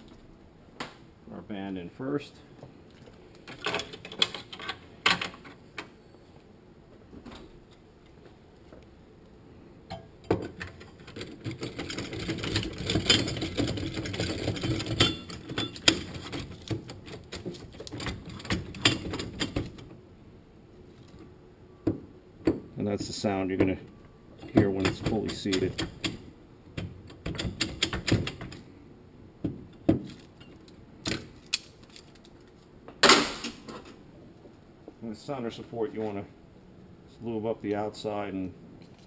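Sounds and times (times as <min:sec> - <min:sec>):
metallic rattling and clicking: 0:10.3 - 0:19.9.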